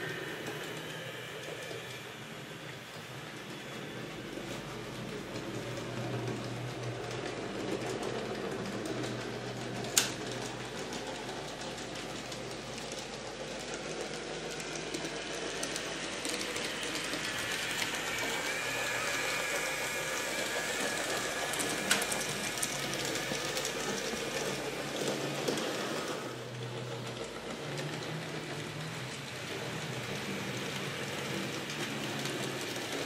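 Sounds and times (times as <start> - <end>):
thin motor whine: 0.0 - 6.2, 14.5 - 26.6
model train whirring rattle: 0.0 - 33.0.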